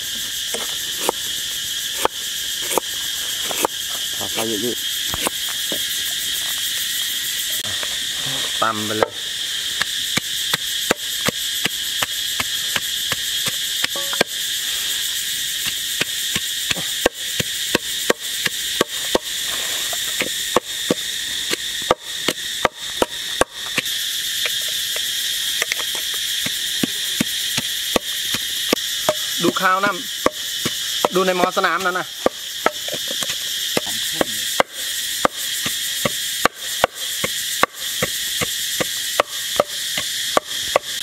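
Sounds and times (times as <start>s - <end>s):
insects chirring: 0.0s - 41.0s
wooden pestle pounding in mortar: 9.8s - 14.4s, 15.6s - 19.3s, 20.1s - 41.0s.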